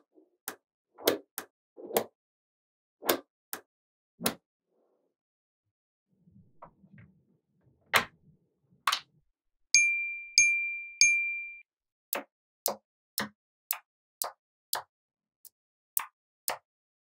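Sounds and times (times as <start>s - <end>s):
bell-like dings: 9.8s - 11.6s.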